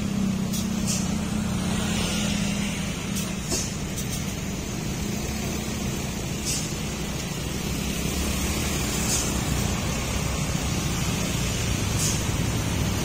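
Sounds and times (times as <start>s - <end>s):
diesel truck engines idling: 0.0s - 13.0s
short air hisses: 0.5s - 1.4s, 3.1s - 4.2s, 6.3s - 7.0s, 8.8s - 9.7s, 11.8s - 12.5s.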